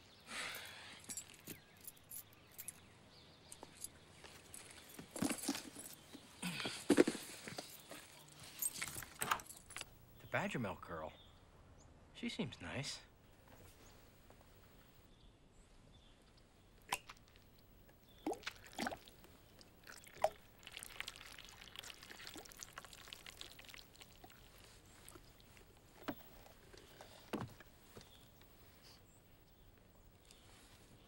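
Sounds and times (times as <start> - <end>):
milk pouring into glass: 19.7 - 24.4.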